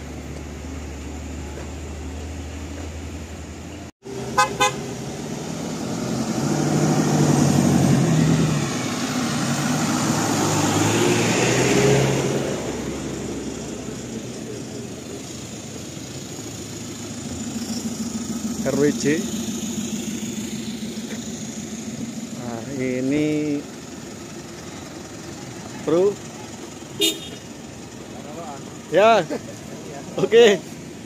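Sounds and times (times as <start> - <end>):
bus driving past: 0.0 - 23.0
vehicle horn toots: 4.2 - 4.9, 26.9 - 27.5.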